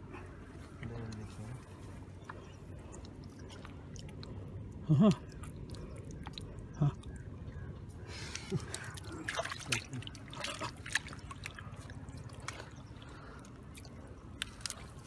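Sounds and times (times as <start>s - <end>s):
hands splashing in shallow water: 8.3s - 15.0s.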